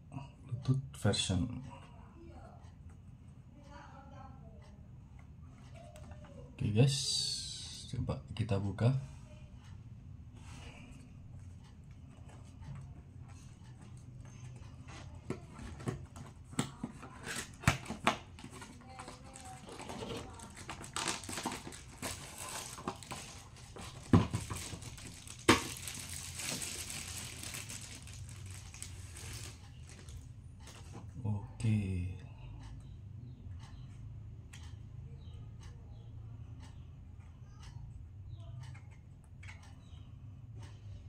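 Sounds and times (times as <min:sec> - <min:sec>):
paper and plastic crinkling: 0:16.7 - 0:30.8.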